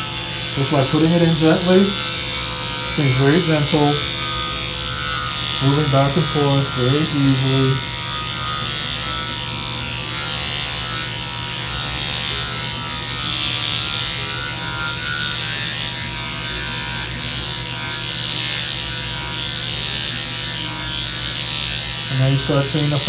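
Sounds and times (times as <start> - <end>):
surgical handpiece buzzing: 0.0 - 23.0.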